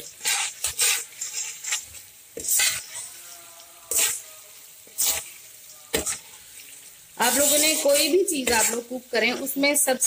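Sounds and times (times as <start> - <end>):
spoon scraping a pan: 0.0 - 9.6
oil sizzling: 0.0 - 10.0.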